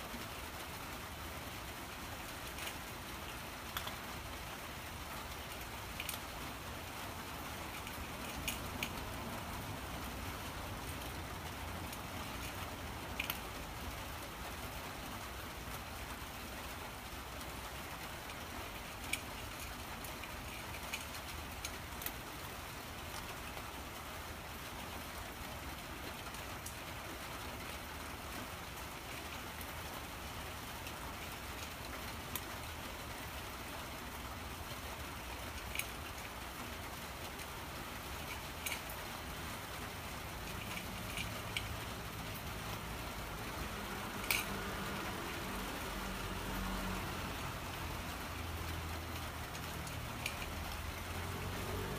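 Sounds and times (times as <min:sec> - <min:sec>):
steady background hiss: 0:00.0 - 0:51.9
cat chewing food: 0:02.1 - 0:23.9, 0:34.6 - 0:51.9.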